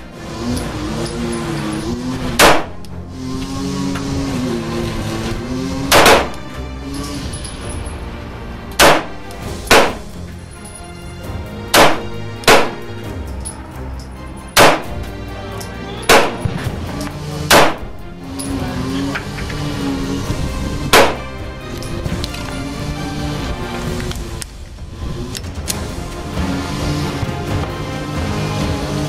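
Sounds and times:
background music: 0:00.0 - 0:29.0
pistol shots: 0:02.4 - 0:02.8, 0:05.9 - 0:06.4, 0:08.8 - 0:10.1, 0:11.8 - 0:12.9, 0:14.6 - 0:14.9, 0:16.0 - 0:16.8, 0:17.5 - 0:17.9, 0:20.9 - 0:21.3.

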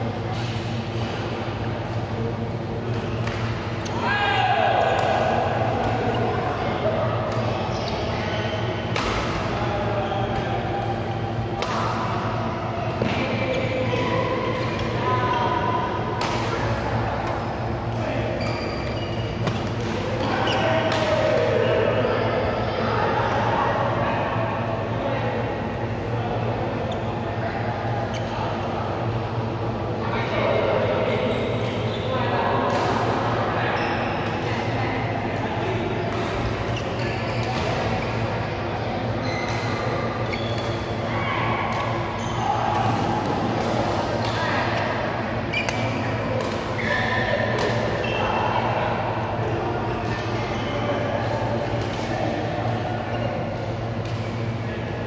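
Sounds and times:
steady low hum: 0:00.0 - 0:55.0
shoe squeak: 0:07.7 - 0:08.7, 0:18.4 - 0:19.4, 0:33.8 - 0:34.2, 0:36.7 - 0:37.5, 0:39.2 - 0:39.6, 0:40.3 - 0:40.6
rackets striking shuttlecock: 0:08.9 - 0:09.6, 0:16.2 - 0:21.6, 0:37.4 - 0:37.9, 0:47.5 - 0:47.9, 0:51.2 - 0:54.4.

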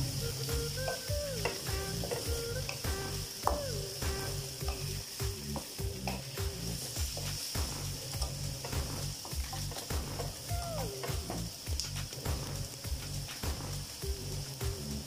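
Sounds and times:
vegetables sizzling in oil: 0:00.0 - 0:15.0
wooden spatula scraping and tapping: 0:00.9 - 0:02.8.

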